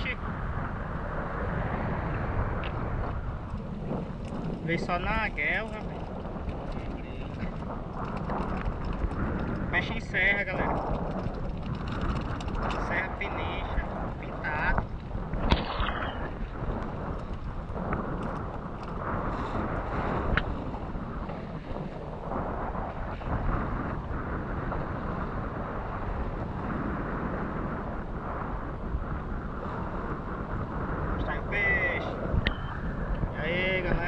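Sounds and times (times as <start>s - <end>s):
wind buffeting microphone: 0.0s - 34.0s
sea washing around boat: 19.0s - 22.5s.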